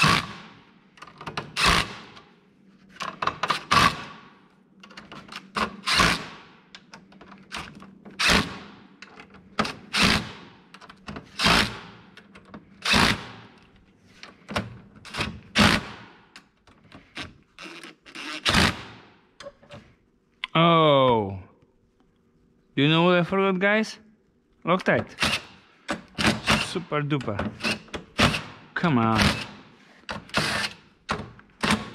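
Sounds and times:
impact driver driving screws: 0.0 - 0.5, 1.4 - 2.3, 5.3 - 6.4, 11.3 - 11.9, 12.8 - 13.5, 15.1 - 16.0, 17.2 - 19.0, 25.1 - 26.8, 27.5 - 31.9.

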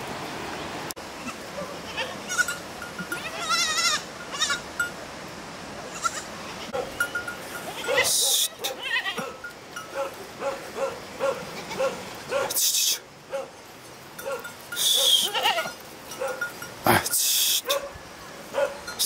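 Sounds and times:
goats bleating: 1.2 - 4.6, 5.9 - 6.7, 7.6 - 9.3, 15.1 - 15.8.

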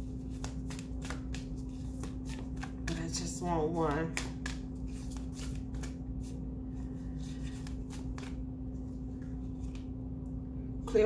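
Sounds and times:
cards being shuffled: 0.0 - 6.4, 7.0 - 8.4, 9.2 - 9.9
low hum: 0.0 - 11.0.

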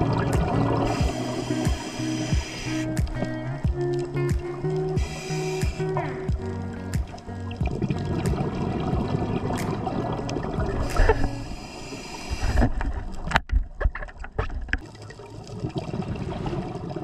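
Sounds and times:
water sloshing and gurgling: 0.0 - 17.0
sharp pops and clicks: 0.2 - 11.3
hissing rush: 0.8 - 3.0, 5.0 - 6.0, 10.8 - 12.7.

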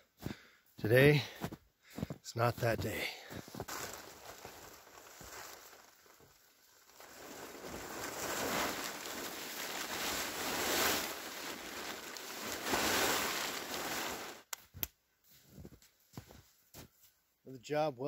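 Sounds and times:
tarp rustling and crackling: 3.2 - 14.5.

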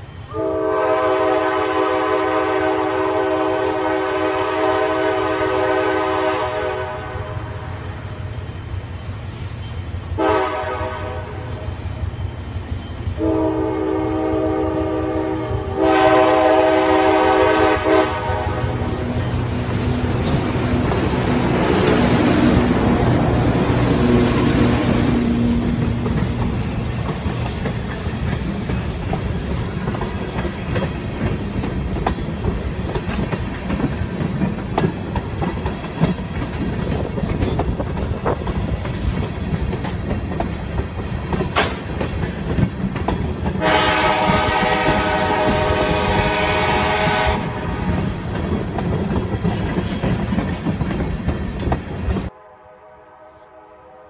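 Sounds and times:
train wheels rumbling on rail: 0.0 - 52.3
diesel locomotive engine rumbling: 0.0 - 54.0
clicks over rail joints: 32.9 - 43.6.

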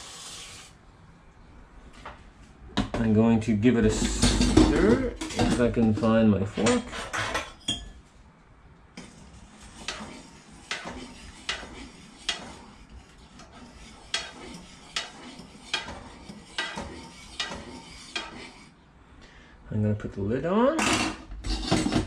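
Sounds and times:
fork stirring rice in saucepan: 9.0 - 18.8.

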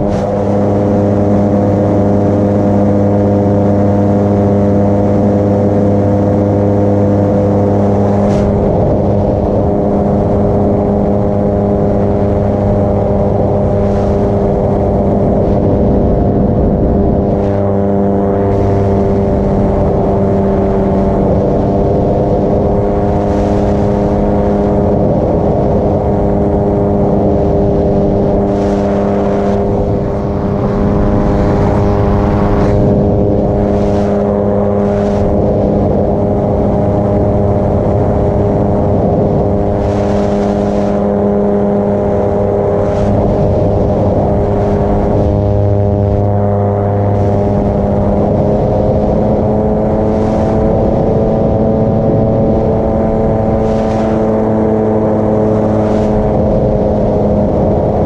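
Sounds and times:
paramotor engine drone: 0.0 - 58.0
rushing wind noise: 0.0 - 58.0.

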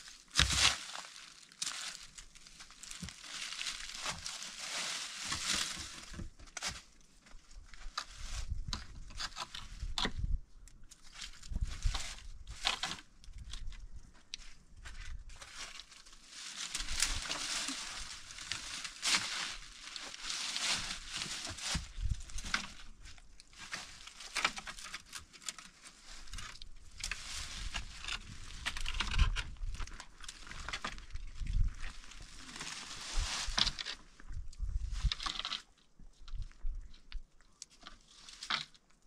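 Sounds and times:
rustling and crinkling: 0.0 - 39.0
tearing: 0.3 - 2.2.

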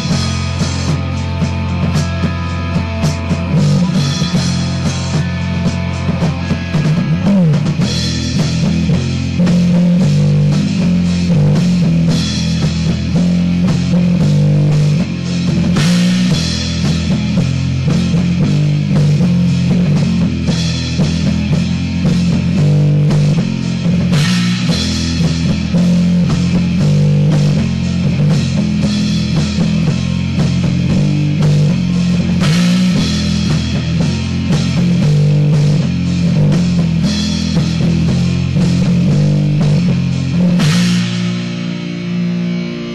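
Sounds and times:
rock band playing: 0.0 - 42.9
cymbal crashes: 39.6 - 42.9.

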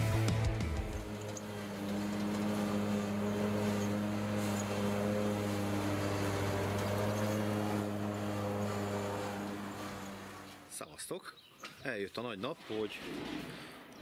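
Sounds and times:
riding mower engine droning: 0.0 - 10.9.

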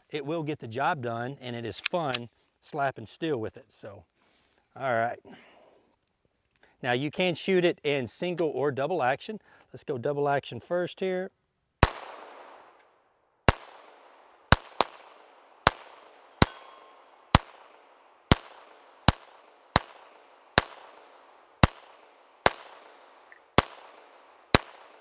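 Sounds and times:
pistol shots: 11.8 - 12.8, 13.5 - 25.0
high ring of steel targets: 13.5 - 13.9, 16.4 - 17.6, 18.3 - 19.9, 21.6 - 23.0, 23.6 - 25.0.

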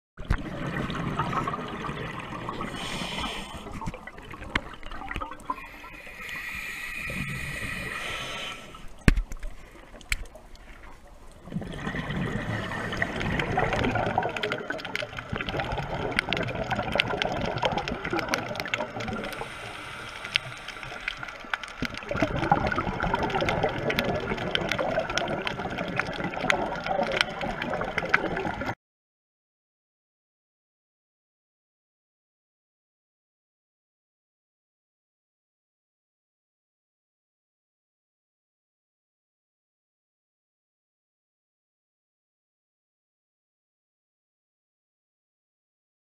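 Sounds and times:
underwater bubbling and rushing: 0.2 - 28.8
small crackling clicks: 8.8 - 11.4, 13.7 - 28.7.

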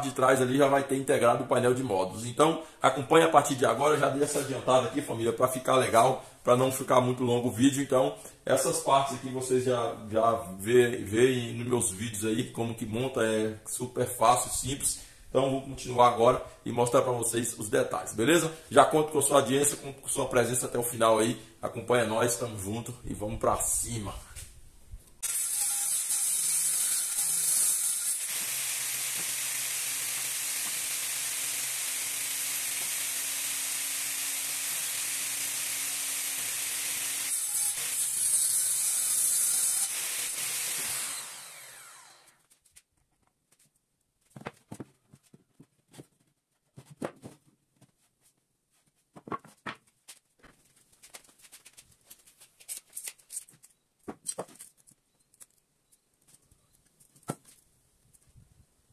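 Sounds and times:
saw spinning down: 25.2 - 42.4
table saw cutting mdf: 25.2 - 42.4
knocks of wood pieces handled: 42.4 - 58.4.

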